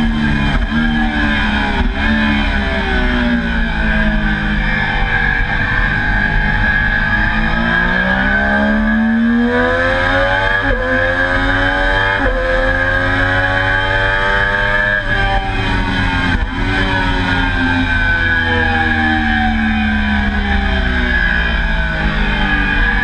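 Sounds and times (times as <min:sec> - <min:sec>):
motorcycle engine accelerating hard: 0:00.0 - 0:23.0.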